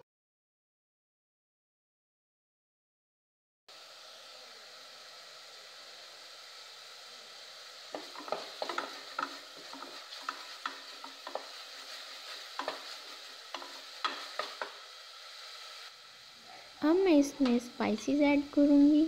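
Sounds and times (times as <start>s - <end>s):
paste sizzling in oil: 3.7s - 19.0s
wooden spatula scraping pot: 7.9s - 14.8s.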